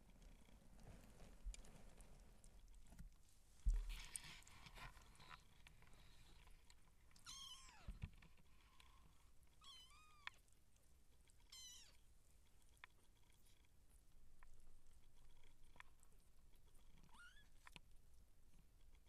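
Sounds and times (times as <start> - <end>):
faint scuffling: 0.8 - 5.6.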